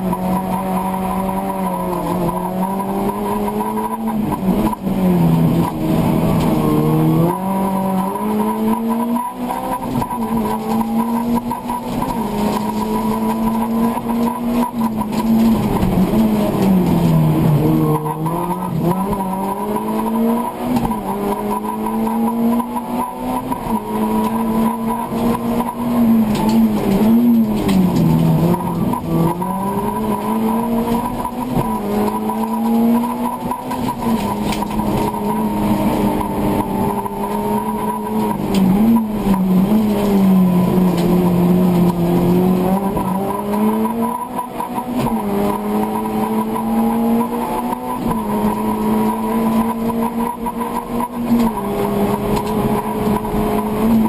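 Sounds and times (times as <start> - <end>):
car engine at high revs: 0.0 - 54.0.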